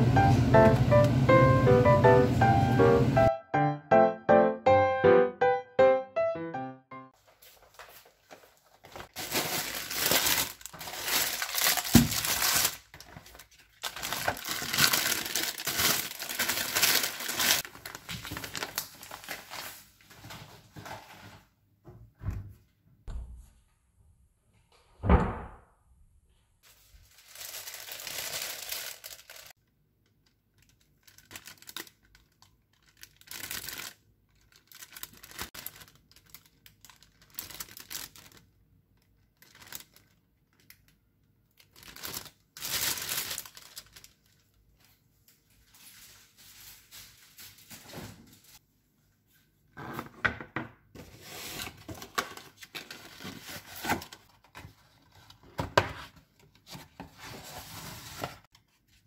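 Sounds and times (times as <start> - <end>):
plastic bags rustling: 7.2 - 21.5, 26.6 - 29.6, 30.5 - 40.8, 41.5 - 48.6.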